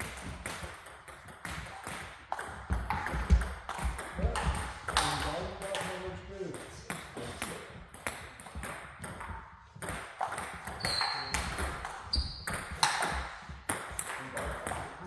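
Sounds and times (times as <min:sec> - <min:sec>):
table tennis balls clicking: 0:06.6 - 0:15.0.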